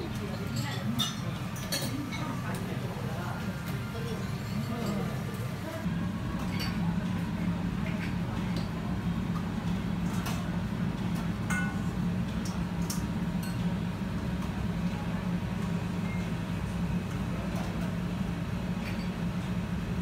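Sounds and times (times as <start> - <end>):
tableware clinking: 0.4 - 2.4, 11.5 - 11.9.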